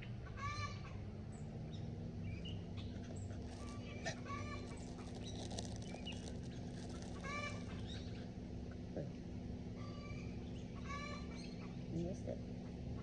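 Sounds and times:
chickens calling: 2.3 - 8.9, 9.8 - 11.9.

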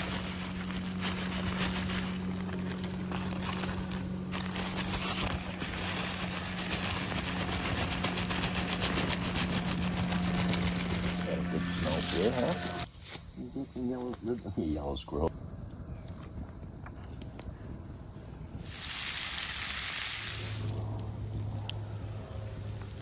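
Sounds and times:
broad rushing noise: 0.0 - 12.9
motorboat engine humming: 0.0 - 12.9.

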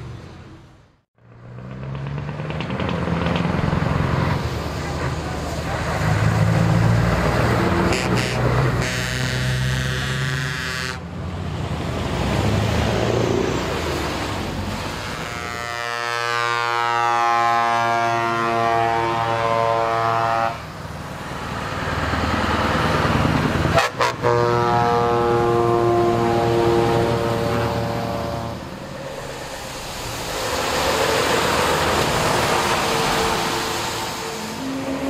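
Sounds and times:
truck engines and exhaust: 0.0 - 35.0
truck air horns blowing chords: 7.7 - 11.1, 15.0 - 20.8, 23.7 - 29.0, 31.0 - 35.0.

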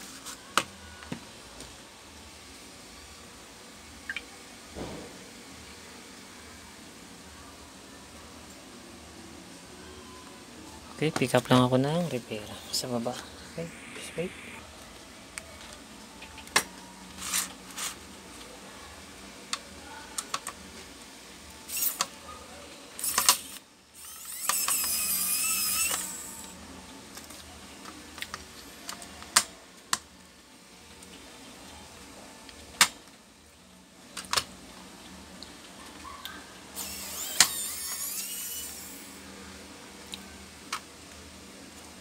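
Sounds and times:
electric screwdriver whirring: 23.0 - 26.5, 36.8 - 39.1.

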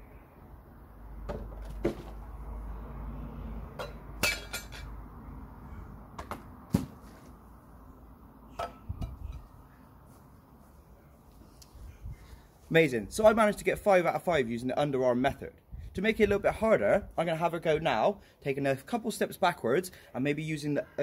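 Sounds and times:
socks knocking over cans: 6.2 - 7.2.

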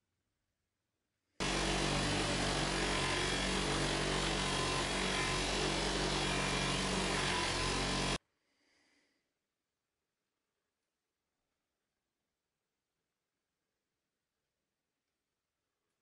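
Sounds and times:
bench grinder motor hum: 1.4 - 8.2
blade grinding on wheel: 1.4 - 8.2.

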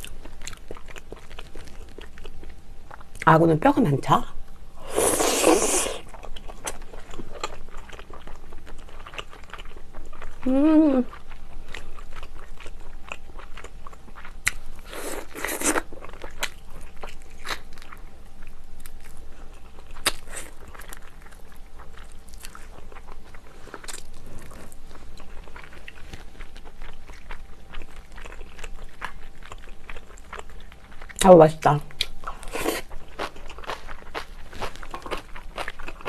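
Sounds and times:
wet chewing: 32.0 - 36.0.

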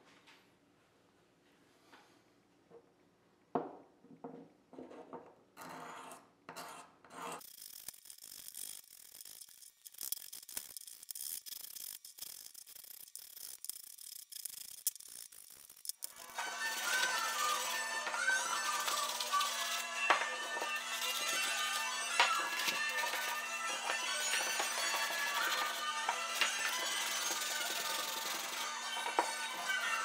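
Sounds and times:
sandpaper rubbing on wood: 24.3 - 28.6.

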